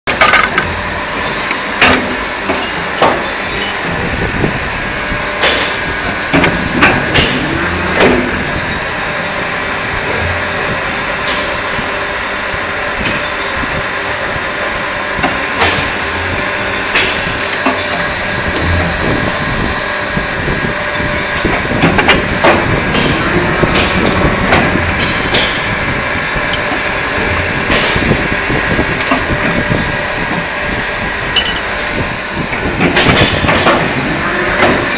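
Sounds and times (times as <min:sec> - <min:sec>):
moulding machine running: 0:00.1 - 0:34.9
sharp metal clanks: 0:31.4 - 0:31.8.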